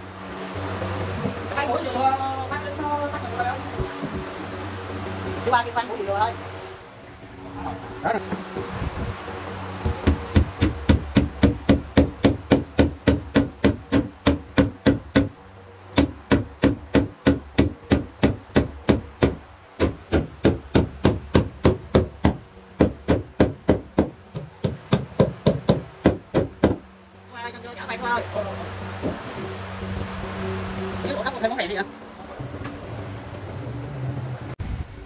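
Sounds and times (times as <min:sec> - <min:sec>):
hammer striking wood: 0:09.8 - 0:26.8, 0:29.0 - 0:29.2.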